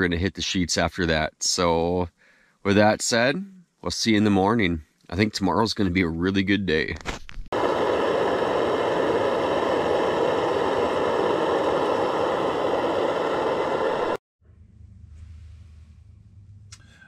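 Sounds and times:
faint low hum: 0:10.2 - 0:17.0.

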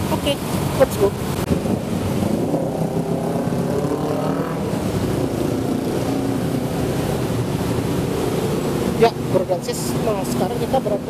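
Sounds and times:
road traffic: 0:00.0 - 0:11.0
vehicle engine passing close: 0:01.1 - 0:09.5.

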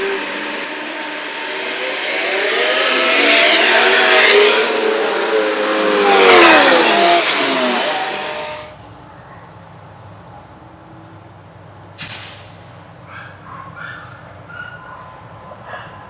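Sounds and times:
diesel truck engine revving: 0:00.0 - 0:08.8.

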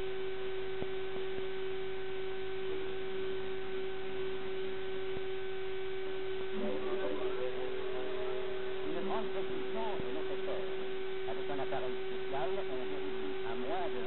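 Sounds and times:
steady single-pitched tone: 0:00.0 - 0:14.0
constant hiss: 0:05.1 - 0:14.0.

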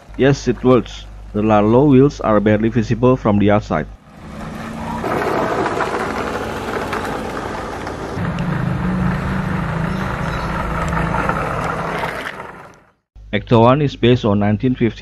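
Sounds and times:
low hum: 0:00.0 - 0:13.3
rc car motor and wheels rushing: 0:04.1 - 0:12.9.

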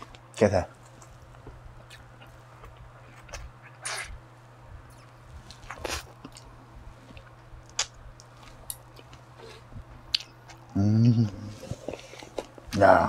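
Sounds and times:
person chewing food: 0:00.8 - 0:04.2, 0:04.9 - 0:10.8
wet mouth clicks: 0:01.8 - 0:04.2.

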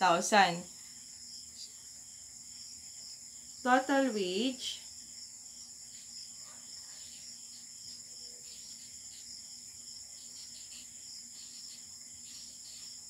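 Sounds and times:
marker scratching on paper: 0:06.8 - 0:09.3, 0:10.1 - 0:13.0.

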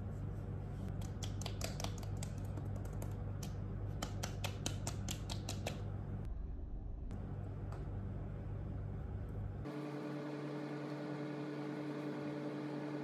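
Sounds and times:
steady low hum: 0:00.0 - 0:13.0
fingertips patting face: 0:00.9 - 0:05.8.

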